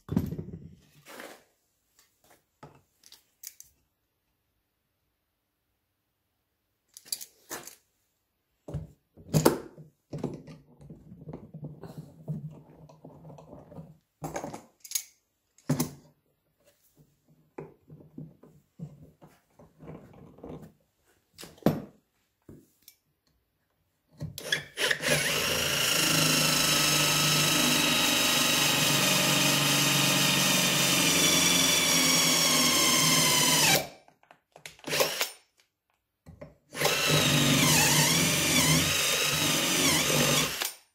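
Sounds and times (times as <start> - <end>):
cordless drill boring wood: 24.4 - 34.0, 34.8 - 35.4, 36.7 - 40.8.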